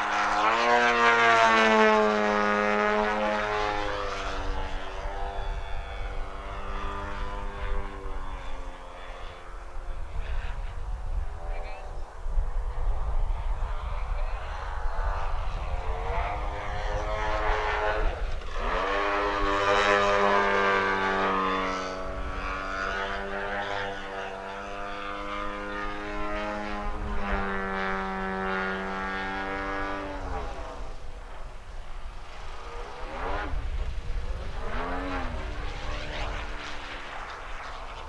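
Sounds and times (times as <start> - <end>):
model aeroplane engine droning: 0.0 - 38.0.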